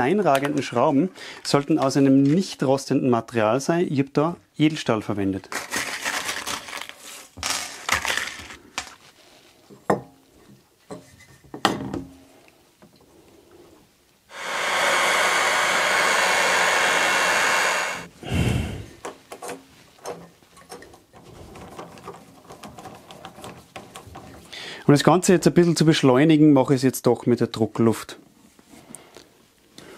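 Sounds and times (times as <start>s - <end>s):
loud steady hiss: 14.3s - 18.9s.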